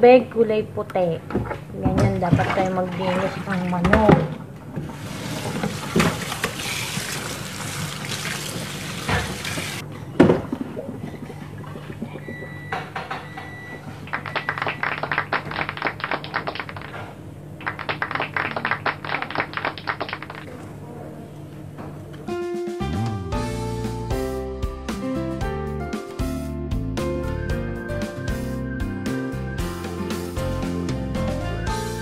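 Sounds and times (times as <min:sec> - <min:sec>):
water splashing in sink: 0:01.3 - 0:20.6.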